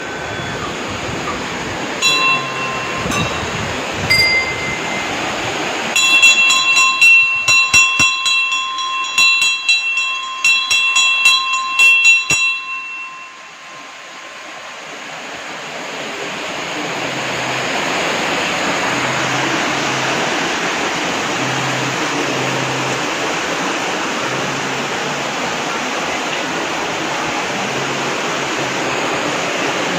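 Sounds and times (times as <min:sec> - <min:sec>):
stream rushing over rocks: 0:00.0 - 0:29.9
temple bell ringing: 0:01.9 - 0:15.7.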